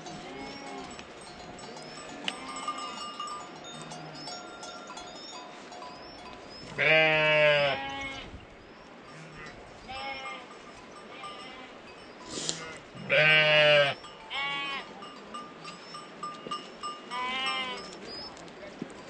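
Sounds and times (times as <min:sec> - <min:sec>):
sheep and goats calling: 0:00.0 - 0:18.4
loud wavering bleat: 0:06.8 - 0:08.2, 0:12.5 - 0:14.9.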